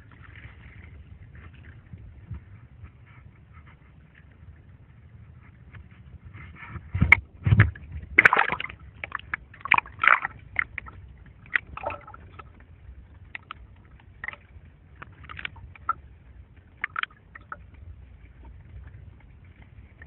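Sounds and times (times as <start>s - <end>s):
low underwater rumble: 0.0s - 20.0s
water pops and clicks: 7.0s - 12.5s, 13.3s - 13.6s, 15.0s - 16.0s, 16.8s - 17.6s
water splashing and bubbling: 7.0s - 20.0s.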